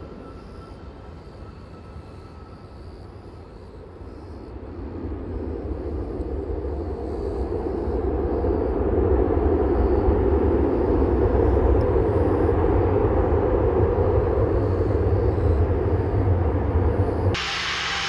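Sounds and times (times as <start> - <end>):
distant jet rumble: 0.0 - 18.0.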